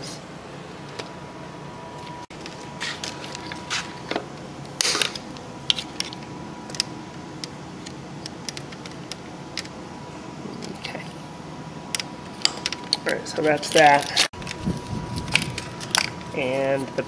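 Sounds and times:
wiring harness handled: 0:12.0 - 0:16.3.

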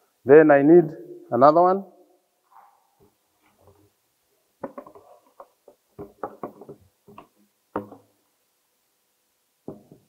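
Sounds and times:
plastic pipes knocking together: 0:04.6 - 0:08.1.

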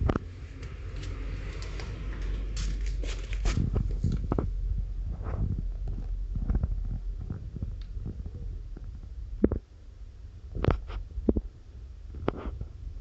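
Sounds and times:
steady low hum: 0:00.0 - 0:13.0
microphone handling noise: 0:02.5 - 0:09.7, 0:10.5 - 0:13.0.

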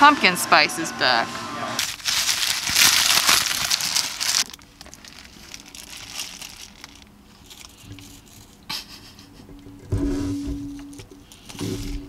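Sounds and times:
paper wrapping crinkling: 0:01.8 - 0:08.6.

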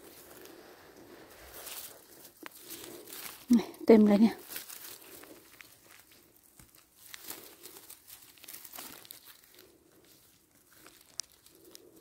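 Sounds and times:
vegetation rustling and crinkling: 0:00.0 - 0:12.0
small snaps and clicks: 0:10.7 - 0:12.0.

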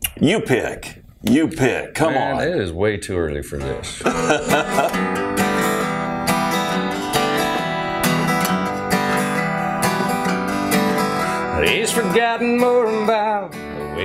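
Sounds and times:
acoustic guitar strumming: 0:04.1 - 0:14.0.

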